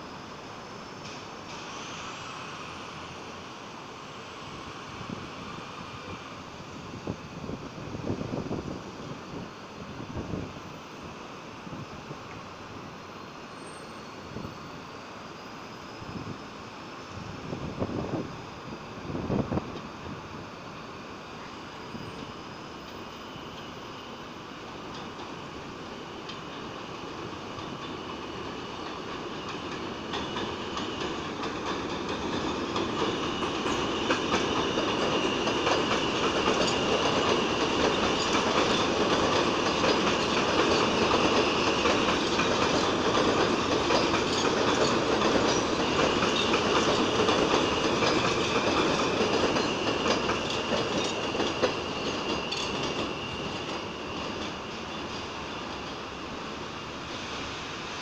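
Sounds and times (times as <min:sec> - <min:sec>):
train high whine: 0:00.0 - 0:58.0
wheels clacking over rail joints: 0:26.2 - 0:56.0.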